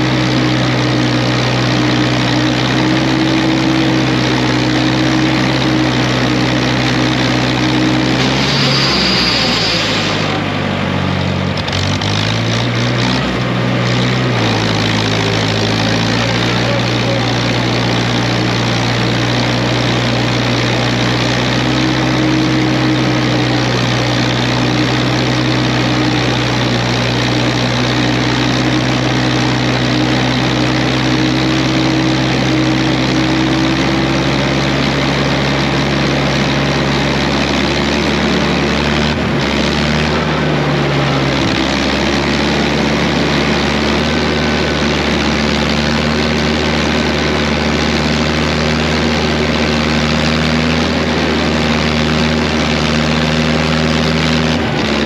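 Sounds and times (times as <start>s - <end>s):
trencher engine running: 0.0s - 55.0s.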